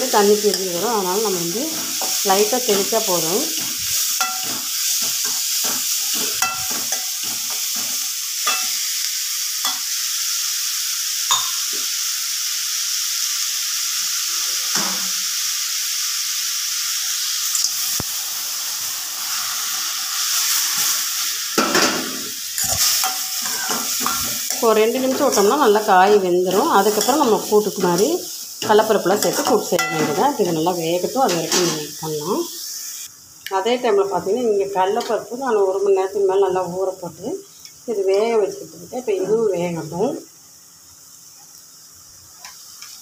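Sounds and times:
vegetables sizzling in oil: 0:00.0 - 0:43.0
metal spatula scraping pan: 0:22.6 - 0:25.5.

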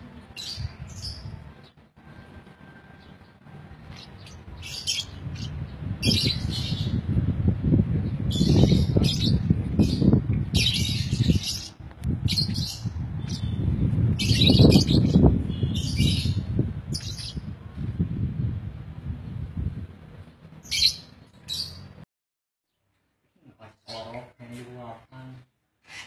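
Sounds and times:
loud low rumbling: 0:03.2 - 0:20.7
lovebirds chirping shrilly: 0:03.9 - 0:07.0, 0:08.3 - 0:17.5, 0:20.6 - 0:21.9.

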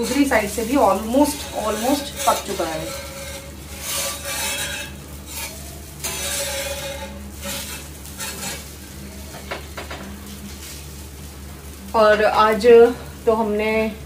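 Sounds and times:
metal spatula scraping pan: 0:00.0 - 0:09.4
light sizzling: 0:00.0 - 0:14.0.

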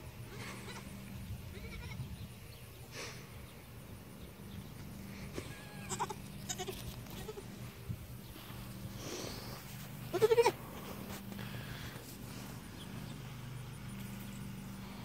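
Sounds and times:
goat kid bleating: 0:00.2 - 0:02.1, 0:05.3 - 0:07.6, 0:10.0 - 0:10.6.

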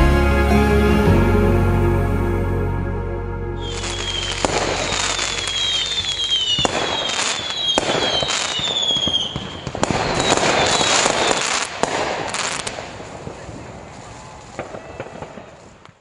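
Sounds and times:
whistles sliding down in pitch: 0:03.6 - 0:11.5
fireworks bangs: 0:03.6 - 0:16.0
fireworks crackling: 0:03.6 - 0:16.0.

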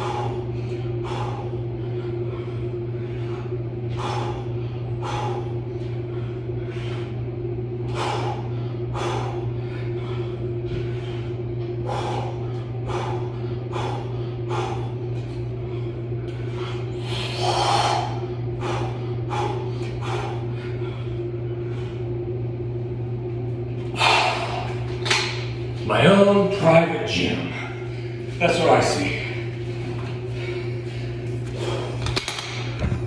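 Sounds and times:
man's sharp puffing breaths: 0:00.0 - 0:22.0
steady low hum: 0:00.0 - 0:33.0.

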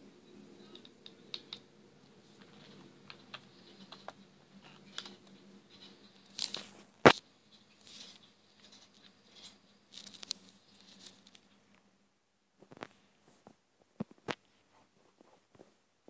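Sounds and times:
faint clicks and taps: 0:00.6 - 0:07.2.

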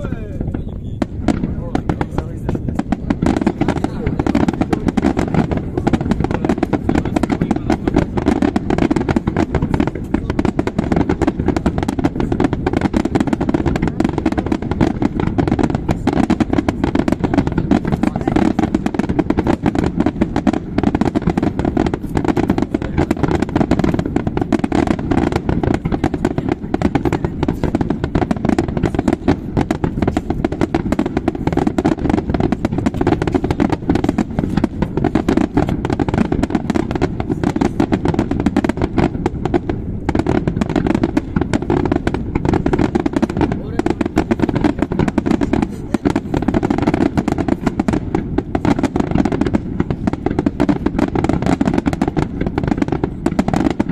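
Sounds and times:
firework crackle: 0:00.0 - 0:53.9
firework shells bursting: 0:00.0 - 0:53.9.

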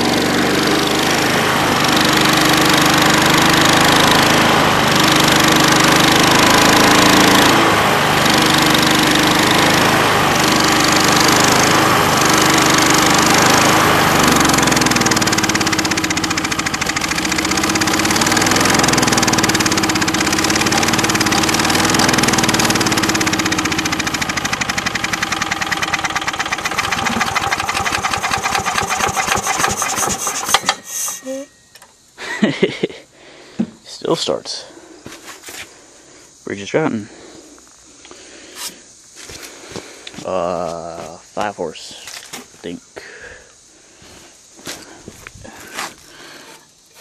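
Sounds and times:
lawn mower engine running: 0:00.0 - 0:31.9.

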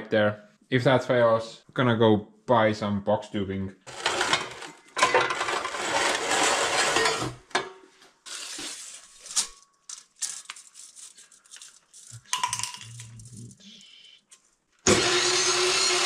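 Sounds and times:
steel pieces clinking: 0:08.4 - 0:13.6.

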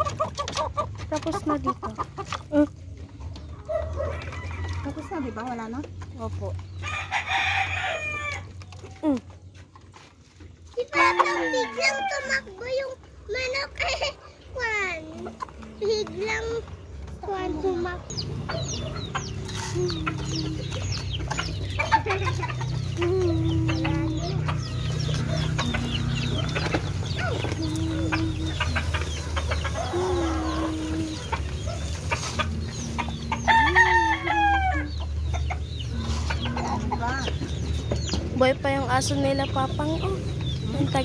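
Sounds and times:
roosters clucking: 0:00.0 - 0:41.0
rooster crowing: 0:03.7 - 0:05.6, 0:06.8 - 0:08.5, 0:11.0 - 0:12.4, 0:33.2 - 0:34.9.

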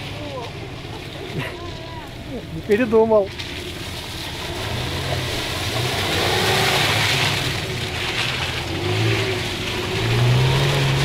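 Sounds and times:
suv engine revving under load: 0:03.4 - 0:11.0.

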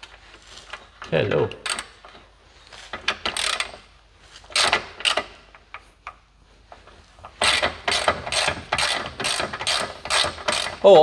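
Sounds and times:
hand ratchet ratcheting: 0:01.6 - 0:02.1, 0:03.0 - 0:03.9, 0:04.5 - 0:05.4, 0:07.4 - 0:10.8.

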